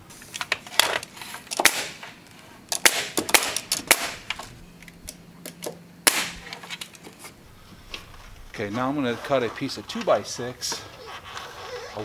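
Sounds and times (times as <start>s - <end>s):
nail gun firing: 1.5s - 2.1s, 2.7s - 4.4s, 6.1s - 6.4s.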